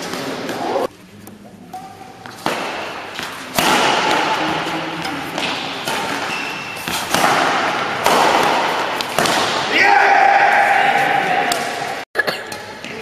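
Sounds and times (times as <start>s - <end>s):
sports hall noise: 0.0s - 13.0s
racket hitting shuttlecock: 1.7s - 9.7s, 11.4s - 12.7s.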